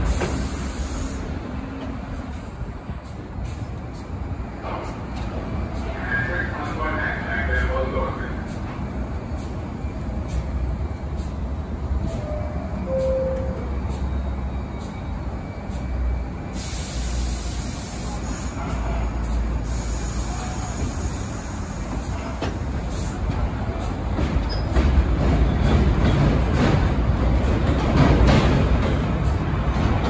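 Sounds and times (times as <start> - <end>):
train hiss: 0.0 - 4.1, 15.6 - 24.1
subway train rumble: 0.0 - 30.0.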